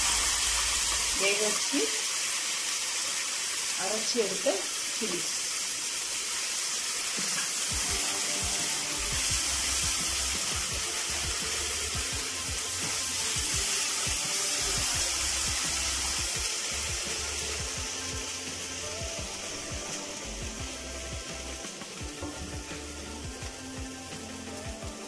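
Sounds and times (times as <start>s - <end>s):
paste sizzling in oil: 0.0s - 25.0s
background music: 7.2s - 25.0s.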